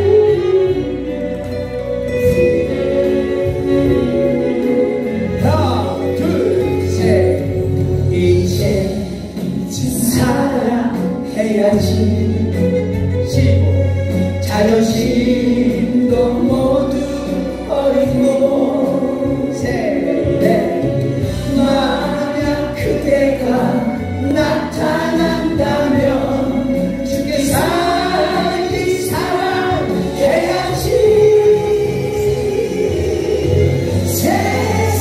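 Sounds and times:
group of people singing: 0.0s - 7.2s, 14.5s - 35.0s
backing track music: 0.0s - 35.0s.

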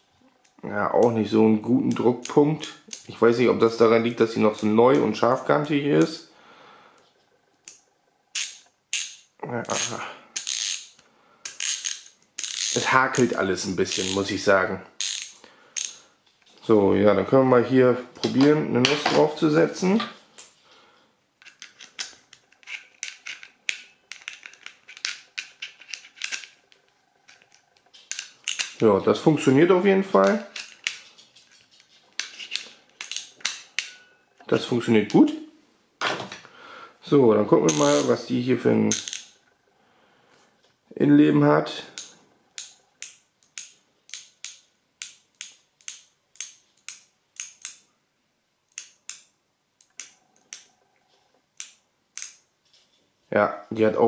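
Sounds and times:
ratchet metal clicks: 8.4s - 10.9s, 11.5s - 14.3s.

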